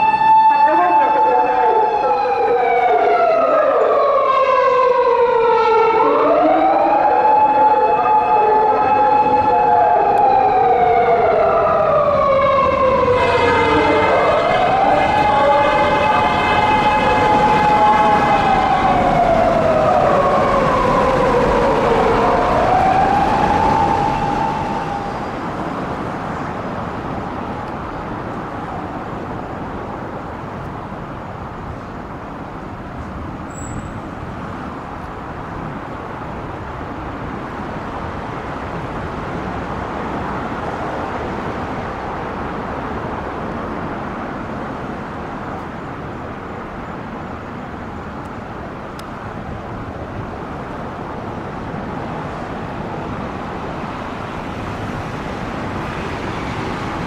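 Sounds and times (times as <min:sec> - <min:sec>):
police siren wailing: 0:00.0 - 0:27.9
road traffic noise: 0:00.0 - 0:57.0.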